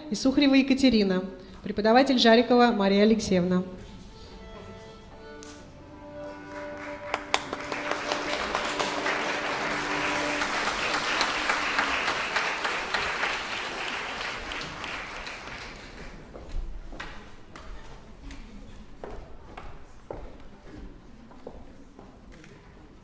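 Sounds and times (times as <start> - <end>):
audience applauding: 6.3 - 16.2.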